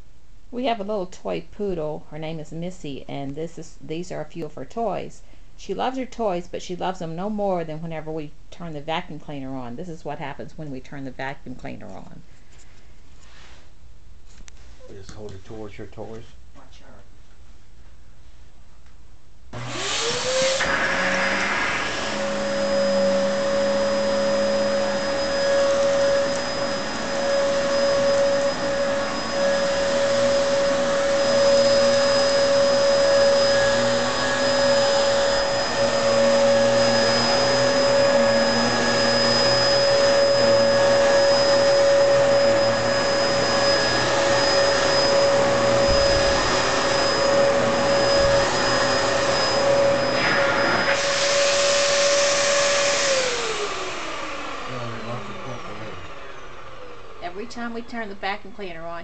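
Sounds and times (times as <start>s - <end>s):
vacuum cleaner motor whining: 19.6s - 59.0s.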